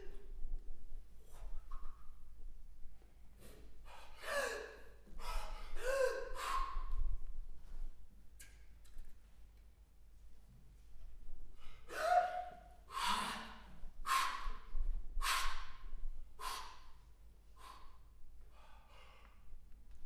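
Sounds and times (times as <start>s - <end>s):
sharp breathy gasps: 3.4s - 7.0s, 11.6s - 19.5s.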